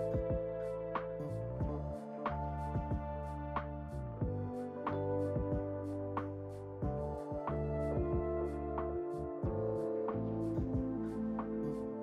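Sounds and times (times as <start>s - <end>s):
music with sustained chords and beat: 0.0s - 12.0s.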